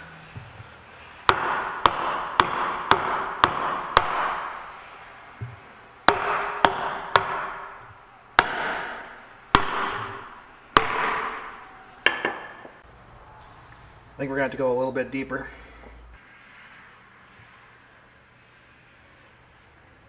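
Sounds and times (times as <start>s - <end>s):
hammer striking wooden block: 1.3s - 4.6s, 6.1s - 7.8s, 8.4s - 12.8s.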